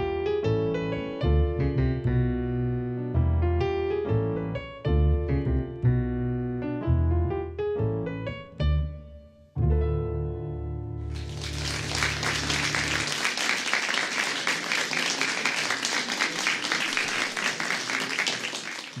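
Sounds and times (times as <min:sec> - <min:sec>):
audience applause: 0:11.1 - 0:19.0.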